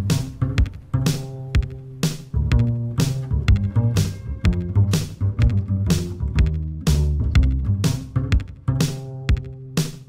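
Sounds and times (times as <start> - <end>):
electronic music with deep bass: 0.0 - 9.8.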